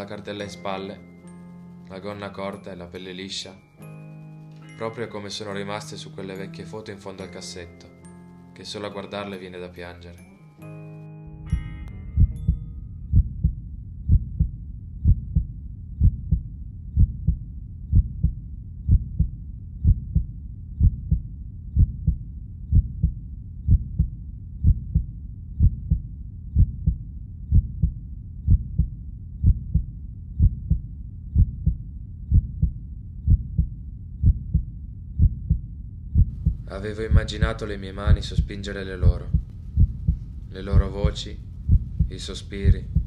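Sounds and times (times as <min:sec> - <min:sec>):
heartbeat double thump: 0:12.2 - 0:38.5, 0:39.2 - 0:43.0
constant low rumble: 0:12.2 - 0:43.0.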